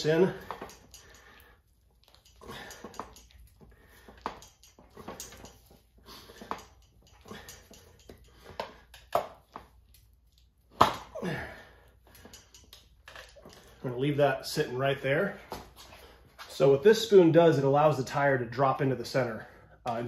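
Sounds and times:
metal clicking against rim: 4.2s - 5.7s.

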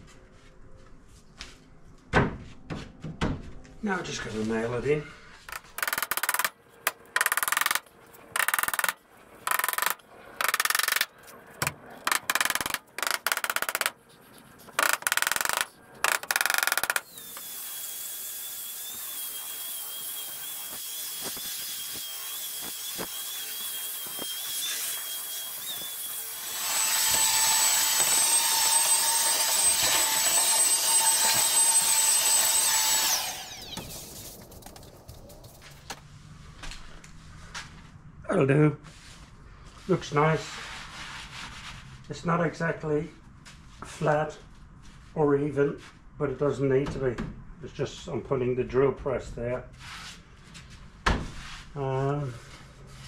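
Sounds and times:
hammer driving nails into wood: 5.5s - 7.8s, 8.4s - 14.0s, 14.8s - 17.0s
belt sander whining: 14.8s - 34.8s.

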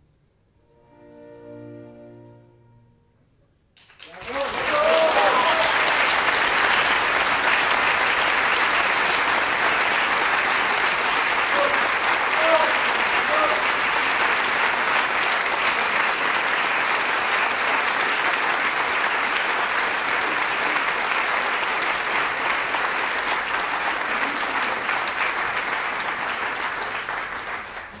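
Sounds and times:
audience applauding: 3.8s - 28.0s.

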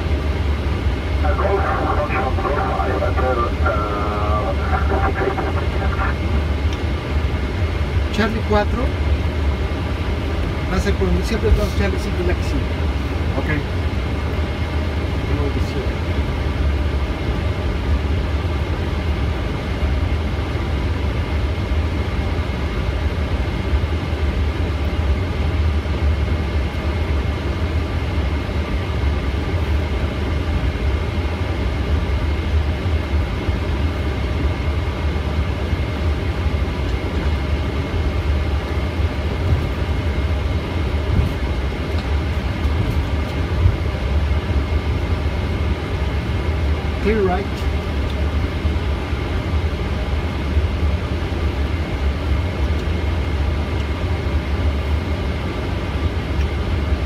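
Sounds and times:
faint high whine: 0.0s - 9.0s
low aircraft rumble: 0.0s - 57.0s.

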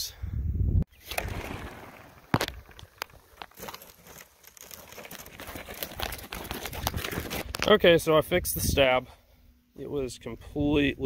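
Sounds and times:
sharp crackles: 1.0s - 7.8s.

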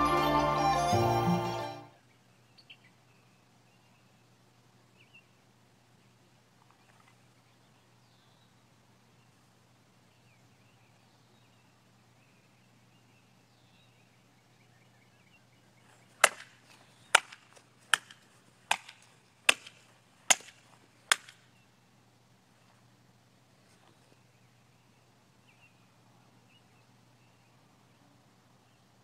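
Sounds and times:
sword cracking through bamboo: 16.2s - 21.4s.

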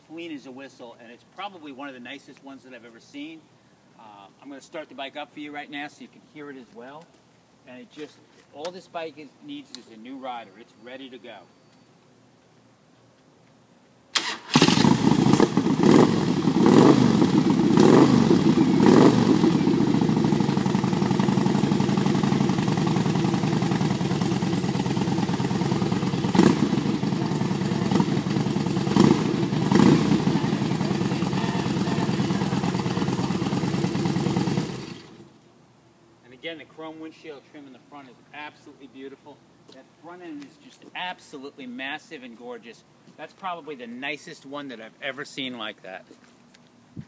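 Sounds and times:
motorcycle engine starting and revving: 14.2s - 35.4s
motorcycle engine idling: 14.8s - 35.3s.

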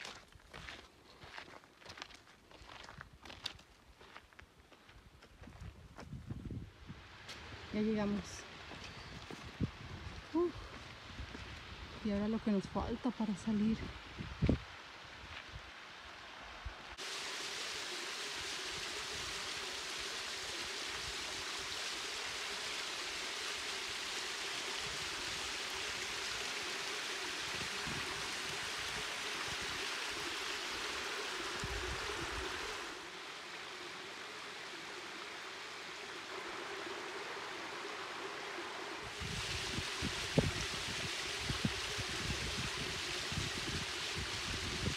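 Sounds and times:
waterfall splashing into pool: 17.0s - 44.9s.

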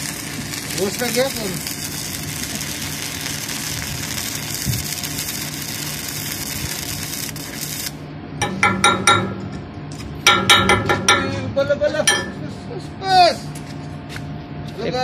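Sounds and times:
welding arc crackling: 0.0s - 11.5s
metallic clinks: 12.1s - 12.5s.

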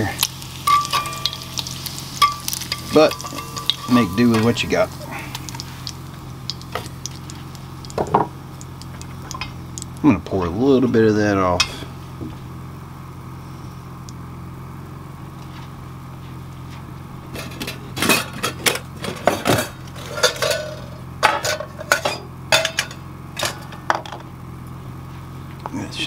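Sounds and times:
steady low hum: 0.0s - 26.0s
metal cookware clattering: 0.6s - 5.0s, 17.3s - 24.2s.

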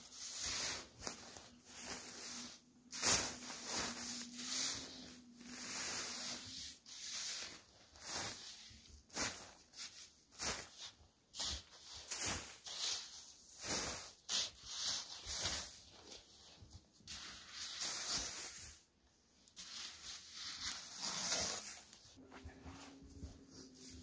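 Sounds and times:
shelter fabric rustling: 0.0s - 24.0s.

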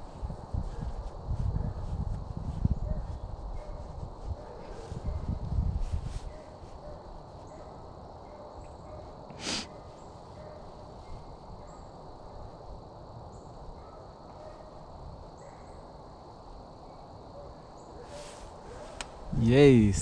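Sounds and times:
loud hiss: 9.3s - 9.7s.

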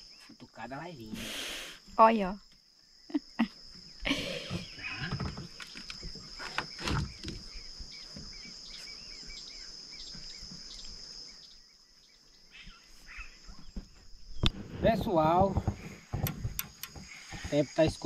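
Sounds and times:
bird chirping: 0.0s - 18.0s
insect buzzing: 0.0s - 18.0s
short knocks: 15.2s - 18.0s.

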